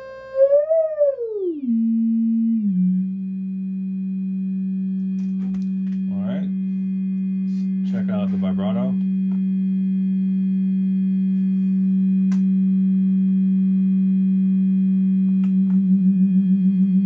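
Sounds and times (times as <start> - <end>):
test tone through amplifier: 0.0 - 17.0.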